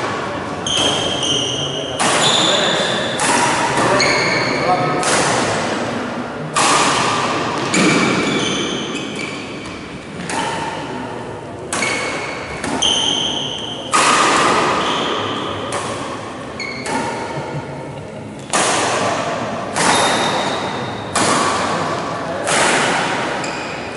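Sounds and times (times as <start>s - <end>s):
rackets hitting shuttlecock: 0.0s - 23.9s
shoes squeaking on court: 0.6s - 3.1s, 3.9s - 4.6s, 7.6s - 9.9s, 16.6s - 17.3s, 23.4s - 23.9s.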